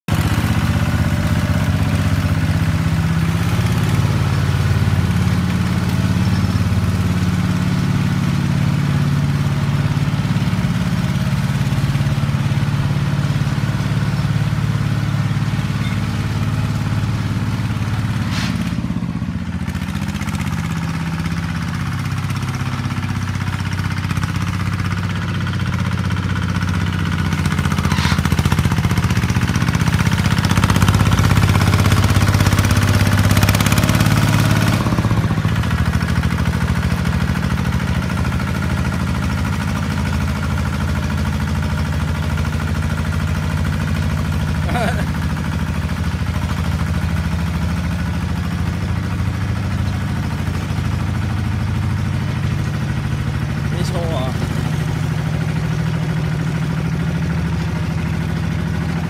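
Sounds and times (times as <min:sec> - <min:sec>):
tractor engine running under load: 0:00.1 - 0:59.0
blade dragging through loose soil: 0:18.0 - 0:19.0, 0:27.6 - 0:28.8.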